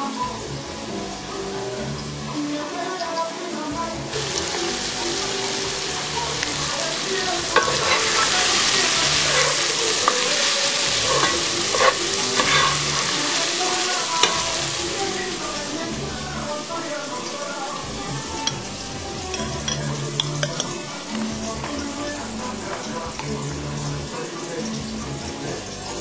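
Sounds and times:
food sizzling in hot oil: 0:00.0 - 0:26.0
utensil knocking on pan: 0:07.4 - 0:13.2, 0:14.2 - 0:14.6.

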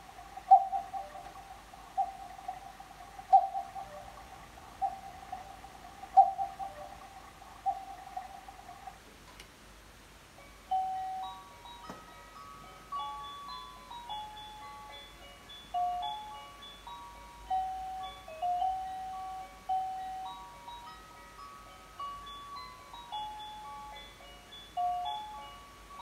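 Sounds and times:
clock chiming melody: 0:00.0 - 0:08.9, 0:10.4 - 0:26.0
recorded cuckoo calls: 0:00.0 - 0:09.2.

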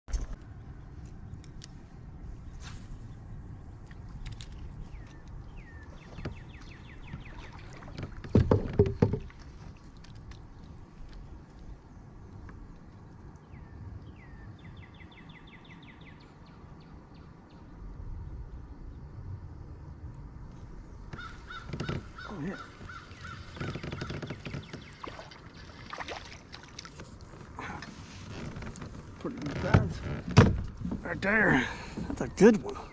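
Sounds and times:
knocks on plastic kayak: 0:08.3 - 0:09.4
bird calling falling notes: 0:21.2 - 0:25.9.

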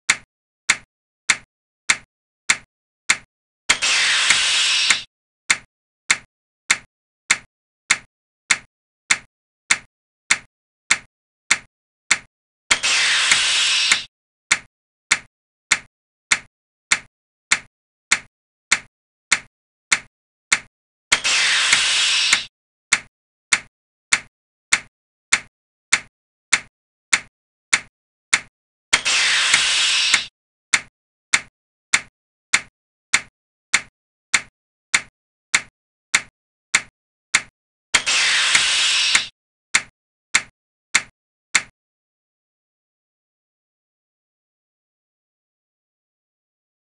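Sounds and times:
sharp clock tick clicks: 0:00.1 - 0:04.3, 0:04.9 - 0:41.7
hissing noise: 0:03.8 - 0:05.0, 0:12.8 - 0:14.1, 0:21.2 - 0:22.5, 0:29.0 - 0:30.3, 0:38.0 - 0:39.3.

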